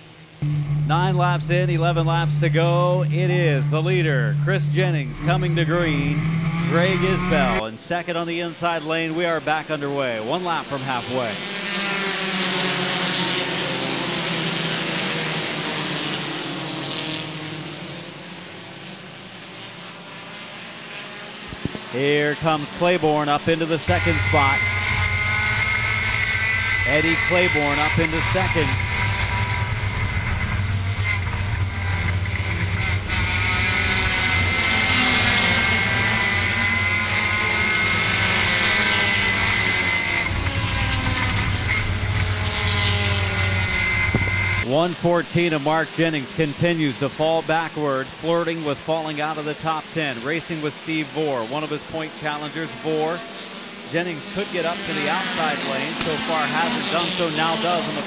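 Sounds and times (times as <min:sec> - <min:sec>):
high-pitched whine: 0:00.0 - 0:11.4, 0:18.4 - 0:45.1
race car engines accelerating: 0:00.0 - 0:58.0
wind and road noise: 0:10.0 - 0:48.4.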